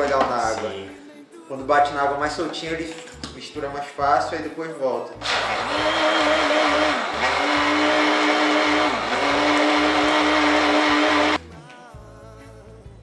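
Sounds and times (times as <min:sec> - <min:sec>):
blender motor whining: 0:05.2 - 0:11.4.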